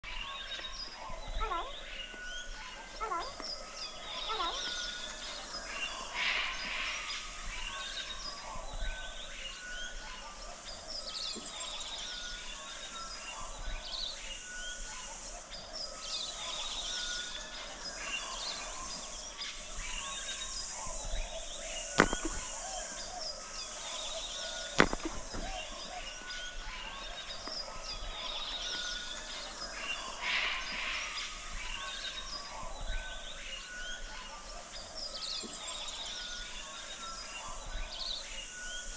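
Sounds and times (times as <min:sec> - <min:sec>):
birds chirping: 0:00.0 - 0:38.9
sharp knocks: 0:22.0 - 0:22.4.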